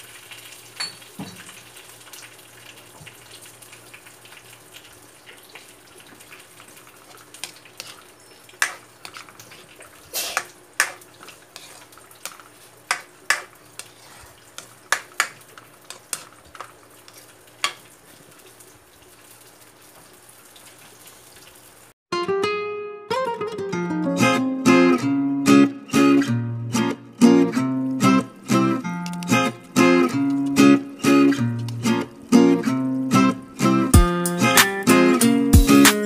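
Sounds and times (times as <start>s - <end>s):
sauce sizzling: 0.0s - 22.0s, 23.4s - 36.0s
ladle knocking and scraping wok: 7.4s - 9.6s, 10.3s - 17.8s.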